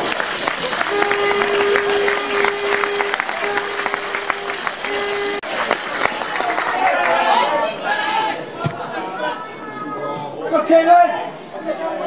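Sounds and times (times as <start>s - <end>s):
crowd clapping and cheering: 0.0s - 8.0s
steady held note: 0.7s - 5.6s.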